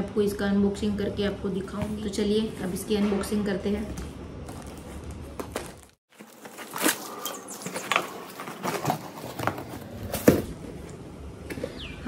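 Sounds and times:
packaging rustling and crackling: 0:04.4 - 0:10.4.

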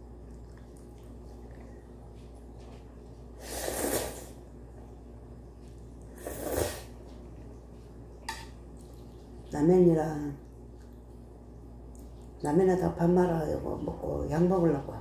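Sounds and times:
noodles slurped: 0:03.4 - 0:04.4.

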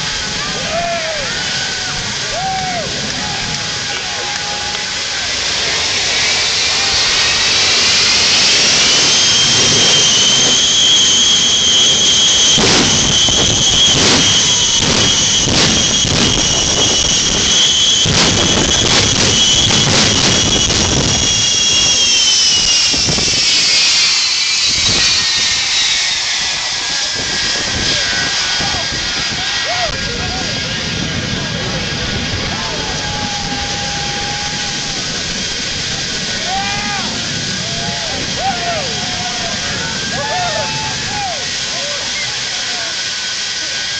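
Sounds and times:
jet engines whining: 0:00.0 - 0:43.9
sharp pops and bangs: 0:12.4 - 0:21.8.

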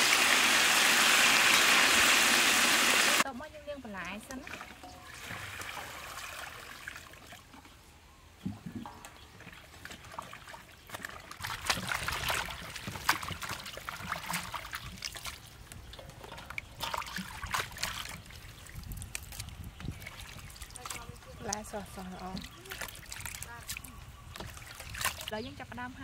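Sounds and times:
water poured from bucket: 0:11.0 - 0:15.5, 0:16.3 - 0:21.0.

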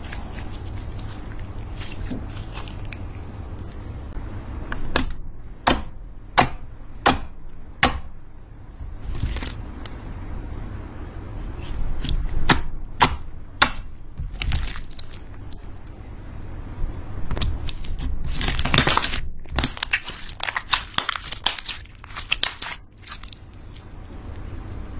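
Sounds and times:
slime crackling and popping: 0:09.0 - 0:10.0, 0:13.7 - 0:15.8, 0:17.4 - 0:23.5.

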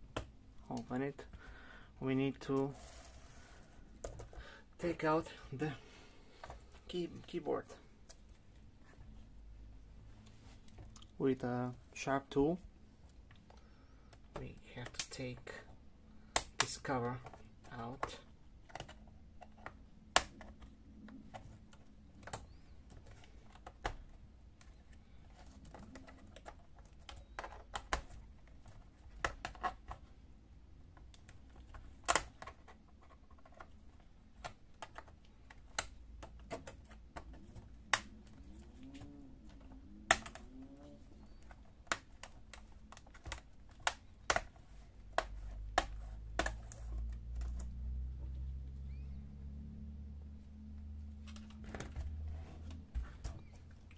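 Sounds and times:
plastic clips snapping loose: 0:31.0 - 0:32.7, 0:34.3 - 0:47.7.

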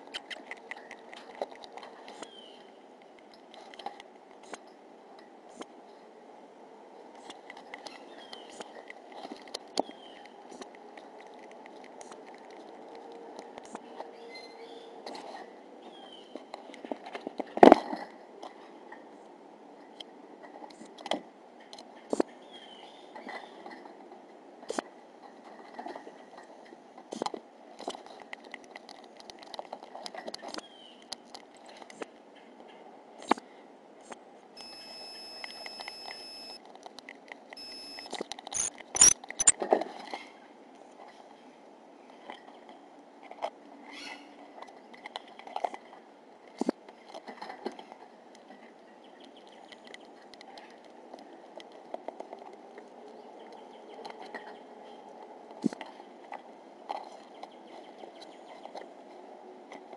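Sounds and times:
high animal chirp: 0:37.6 - 0:39.5.

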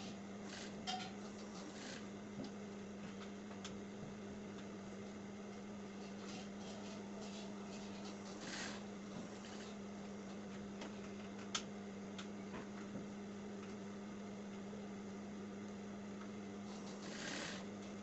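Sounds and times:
sewing machine motor humming: 0:00.4 - 0:02.1, 0:06.2 - 0:09.8, 0:16.6 - 0:18.0.

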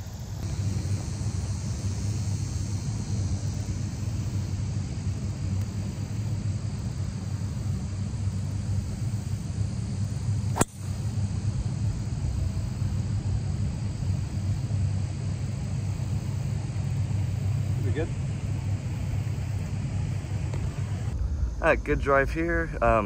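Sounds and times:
steady low rumble: 0:00.0 - 0:23.0
golf club striking ball: 0:10.5 - 0:11.1.

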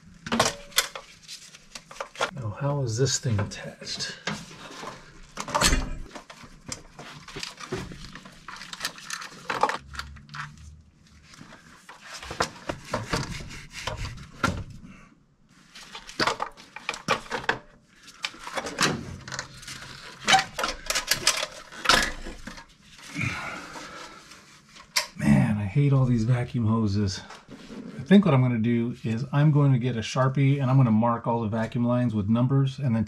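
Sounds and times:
metal and plastic parts rattling: 0:00.2 - 0:02.3, 0:03.5 - 0:10.6, 0:15.8 - 0:23.1.

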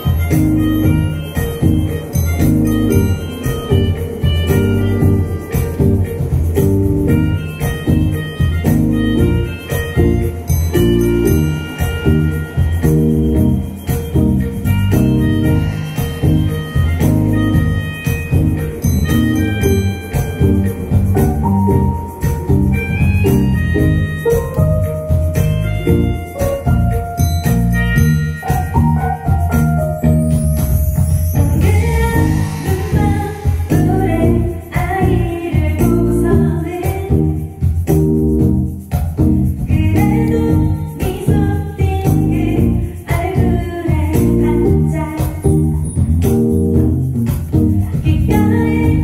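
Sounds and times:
plucked kalimba notes: 0:00.0 - 0:36.5
drum kit: 0:00.0 - 0:49.0
electric bass guitar: 0:00.0 - 0:49.0
percussion: 0:00.0 - 0:49.0
woman singing into microphone: 0:31.4 - 0:37.7, 0:39.6 - 0:45.9, 0:47.8 - 0:49.0.

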